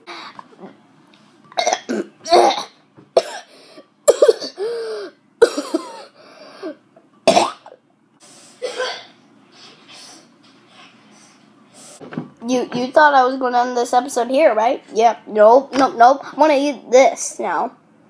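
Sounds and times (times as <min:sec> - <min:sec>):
boy coughing: 0:01.6 - 0:03.5, 0:04.1 - 0:07.8, 0:08.6 - 0:09.2.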